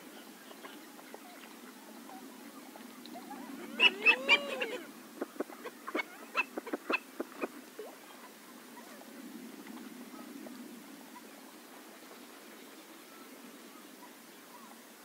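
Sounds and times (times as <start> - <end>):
duck calling: 3.7 - 4.9.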